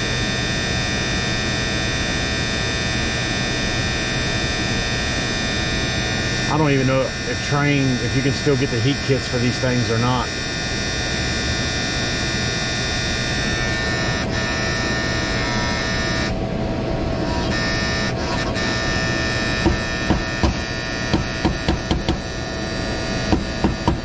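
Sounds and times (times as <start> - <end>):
contactor buzzing hum: 0.0 - 24.0
sharp taps on contactor: 19.6 - 22.2, 23.3 - 24.0.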